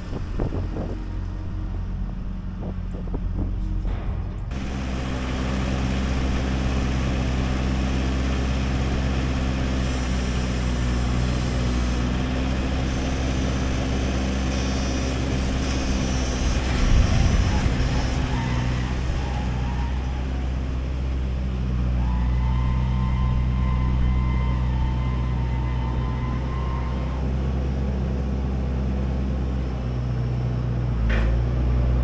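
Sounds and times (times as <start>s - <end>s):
tractor diesel engine idling: 0.0s - 22.1s.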